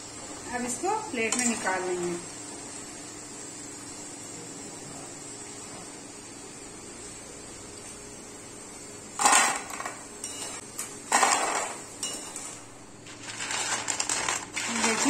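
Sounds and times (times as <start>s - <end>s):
fries clattering onto a plate: 9.2s - 15.0s
ladle clinking: 11.5s - 12.6s
dry crackling of fries: 12.5s - 15.0s.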